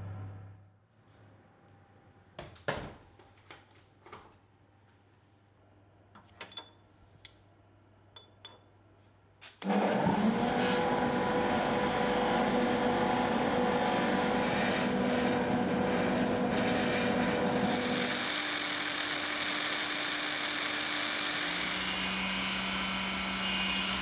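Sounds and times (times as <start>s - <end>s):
bench grinder motor hum: 9.6s - 24.0s.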